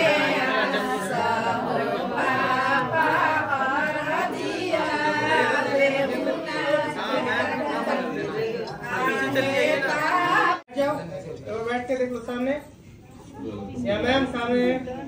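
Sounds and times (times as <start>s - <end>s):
group singing without instruments: 0.0s - 10.7s.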